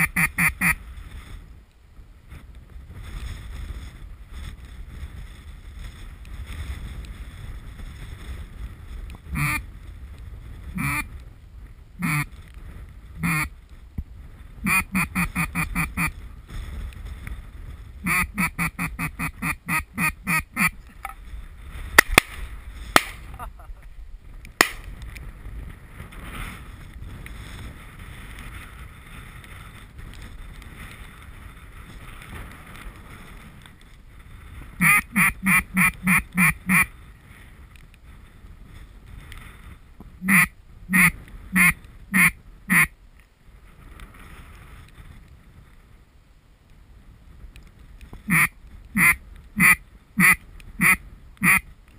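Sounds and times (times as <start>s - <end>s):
duck quacking: 0.0s - 0.8s, 9.3s - 9.6s, 10.8s - 11.1s, 12.0s - 12.3s, 13.2s - 13.5s, 14.6s - 16.1s, 18.0s - 20.8s, 34.8s - 36.9s, 40.2s - 42.9s, 48.3s - 51.6s
wind noise: 0.0s - 51.9s
sharp clicks: 22.0s - 23.2s.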